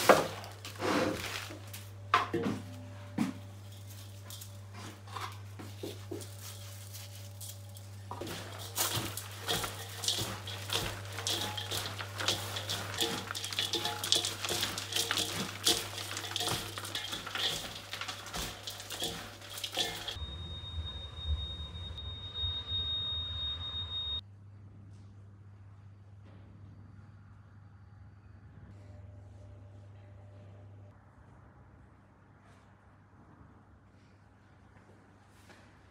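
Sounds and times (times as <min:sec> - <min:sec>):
hands mixing meat filling: 0:05.6 - 0:20.2.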